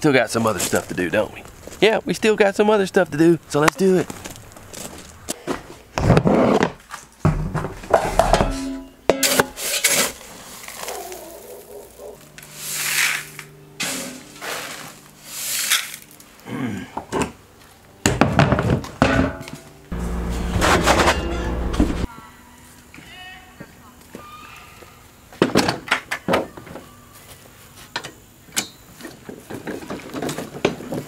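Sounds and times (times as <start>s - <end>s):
metal scoop scraping feed bins: 7.9s - 11.0s, 12.5s - 16.1s, 19.9s - 22.1s.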